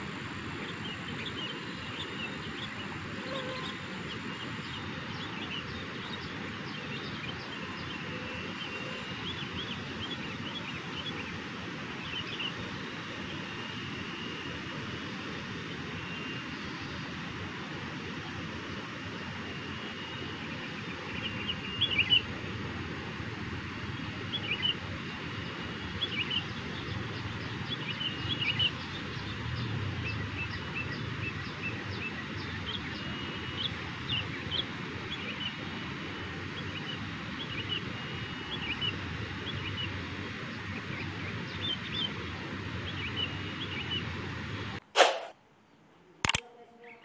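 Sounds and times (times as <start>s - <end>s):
faint high steady tone: 0.0s - 11.4s
outdoor background noise: 0.0s - 47.0s
bird chirping: 0.5s - 11.4s.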